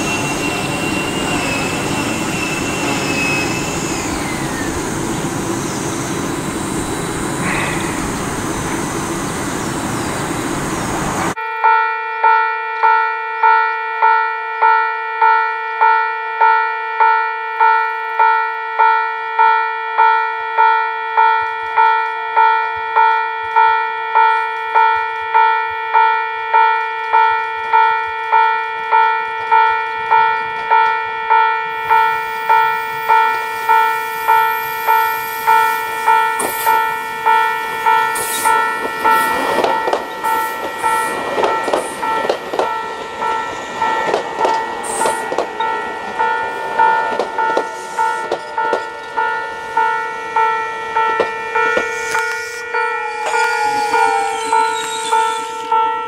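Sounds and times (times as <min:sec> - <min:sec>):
level-crossing warning bell: 0:00.0 - 0:10.0, 0:11.3 - 0:56.0
train wheels rumbling and clacking: 0:00.0 - 0:11.4, 0:26.6 - 0:52.6.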